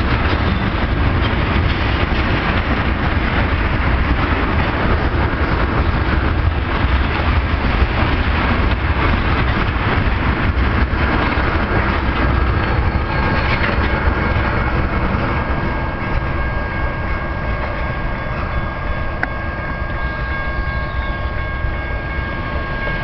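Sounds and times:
freight train rumbling on rails: 0.0 - 23.0
high ringing tones: 12.3 - 23.0.

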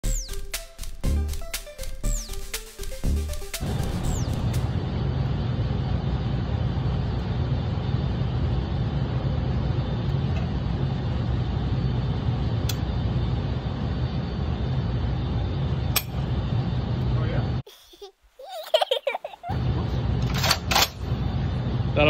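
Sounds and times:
ventilation system rumble: 0.0 - 17.7, 18.4 - 22.0.

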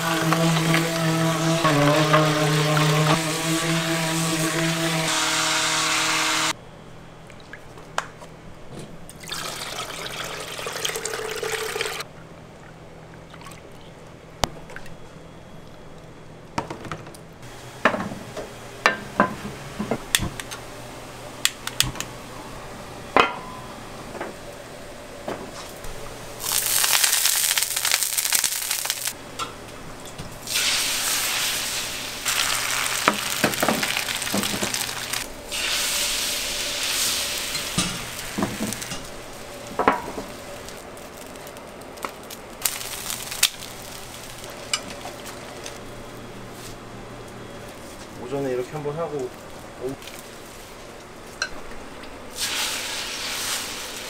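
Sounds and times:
immersion blender whirring: 0.0 - 6.6
egg sizzling in hot pan: 26.4 - 29.2, 30.4 - 45.3, 52.3 - 54.0.

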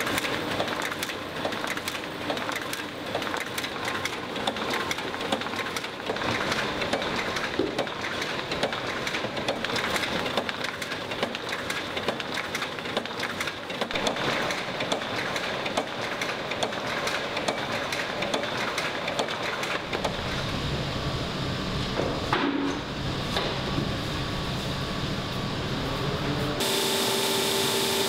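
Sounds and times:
print-finishing machine rattling: 0.0 - 20.9
mechanical hum: 0.0 - 28.0.

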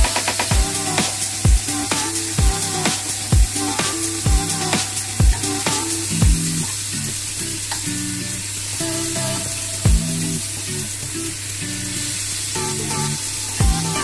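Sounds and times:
background music with bass: 0.0 - 14.0
deep kick-drum thumps: 2.4 - 2.6, 4.3 - 4.5, 5.2 - 5.4, 6.2 - 6.5, 9.9 - 10.1, 13.6 - 13.9
steaks sizzling in frying pan: 7.8 - 14.0.

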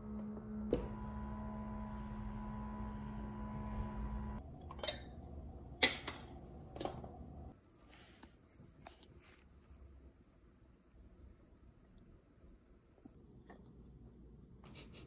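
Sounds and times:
steady hum: 0.0 - 4.4.

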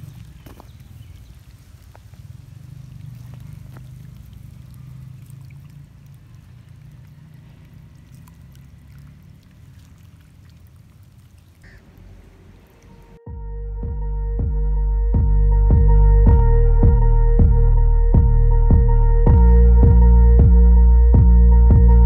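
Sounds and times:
hose water gurgling into soil: 0.0 - 13.2.

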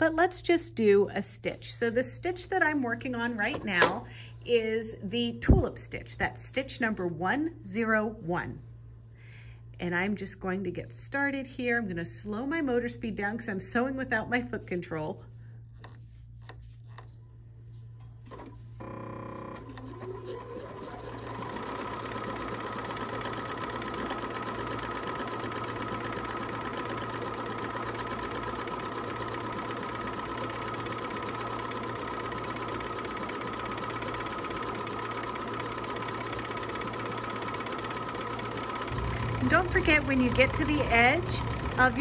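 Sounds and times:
sewing machine running: 18.4 - 42.0.

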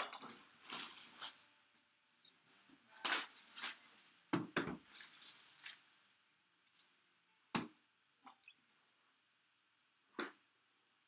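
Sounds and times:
plastic wrap crinkling: 0.0 - 1.5, 2.6 - 6.2.

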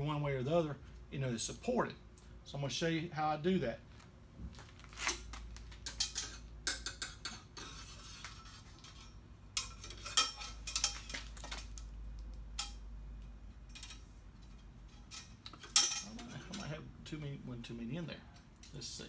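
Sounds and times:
metal rods clinking: 5.8 - 7.5, 8.8 - 11.9, 12.6 - 12.8, 13.6 - 16.7.

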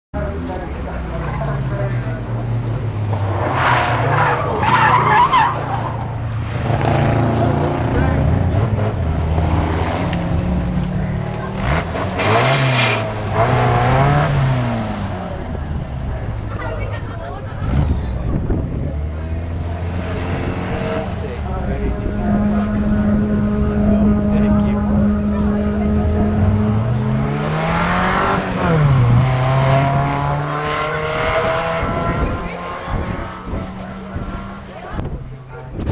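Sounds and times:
car engine working hard: 0.2 - 35.9
tyres squealing: 3.5 - 6.2.

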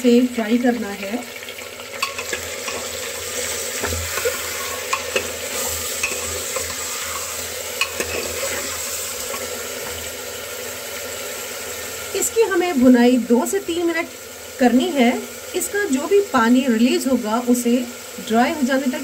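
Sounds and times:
meat sizzling in hot oil: 0.0 - 19.0
metal spoon scraping pot: 2.0 - 9.5.

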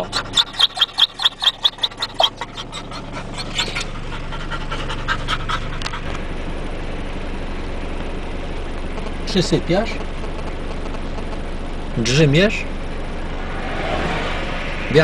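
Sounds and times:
dog panting: 0.0 - 6.3
car hum: 0.0 - 15.0.

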